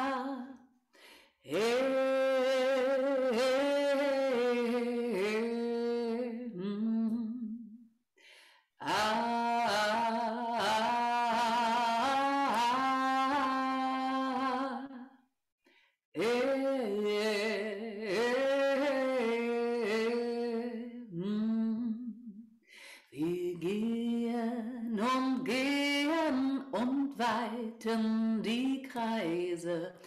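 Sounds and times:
woman singing unaccompanied: 0.0s - 0.6s, 1.5s - 7.7s, 8.8s - 15.1s, 16.2s - 22.3s, 23.1s - 30.0s.

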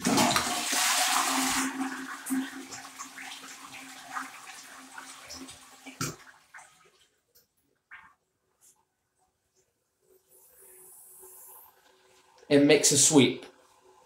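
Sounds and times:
toilet cistern refilling: 0.0s - 7.1s, 10.3s - 14.0s.

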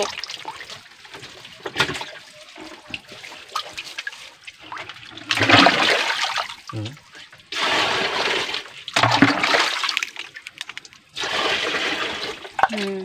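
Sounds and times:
splashing in muddy water: 2.9s - 13.0s.

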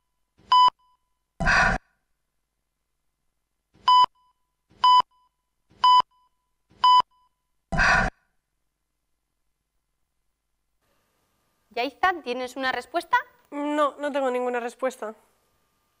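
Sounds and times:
short electronic beeps: 3.9s - 7.4s.

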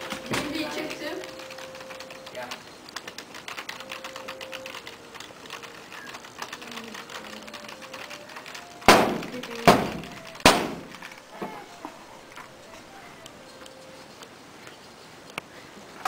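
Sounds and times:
typing on computer keyboard: 0.0s - 11.3s
loud sharp bangs: 8.8s - 11.1s.

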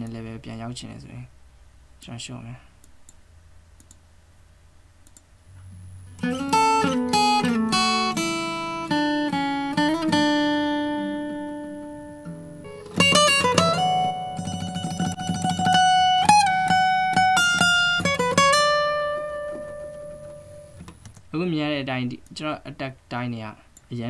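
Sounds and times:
faint hum: 0.0s - 24.0s
plucked guitar notes: 5.6s - 20.9s.

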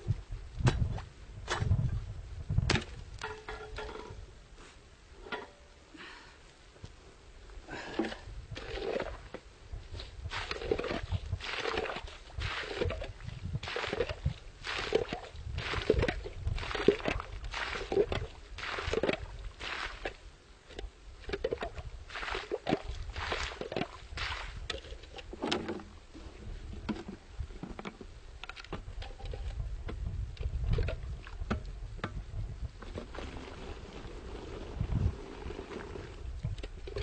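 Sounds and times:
water splashing being scooped: 10.3s - 20.2s, 21.4s - 25.0s.

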